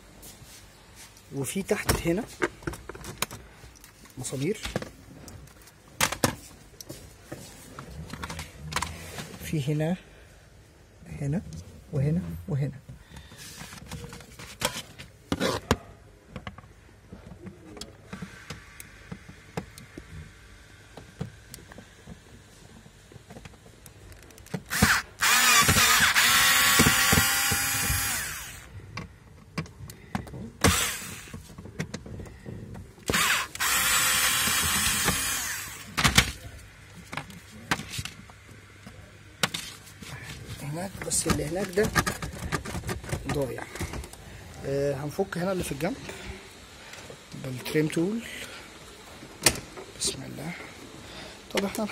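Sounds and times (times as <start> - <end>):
drill motor whining: 24.7 - 28.7, 30.6 - 31.4, 33.0 - 36.0.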